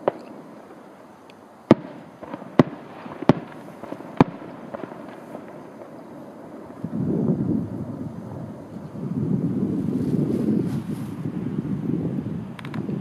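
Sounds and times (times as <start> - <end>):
sharp cracks: 0.0 - 6.8
faint outdoor hiss: 0.0 - 13.0.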